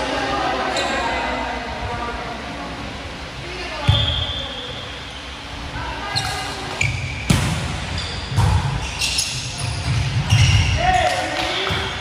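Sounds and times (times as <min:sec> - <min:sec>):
sneaker squeaks on floor: 0:03.9 - 0:04.7, 0:06.1 - 0:11.8.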